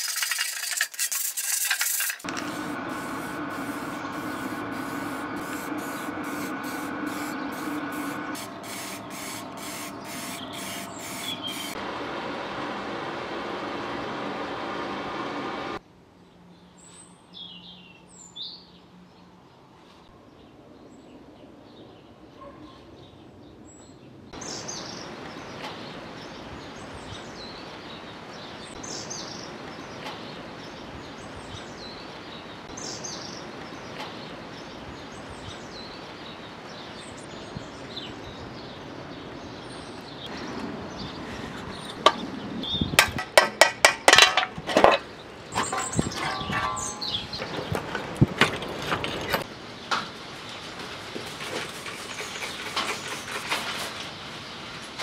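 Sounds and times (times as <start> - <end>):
outdoor background noise: 0.0 - 55.0
birds chirping: 2.4 - 11.8, 24.4 - 49.9
metal clanks and knocks: 43.0 - 49.4.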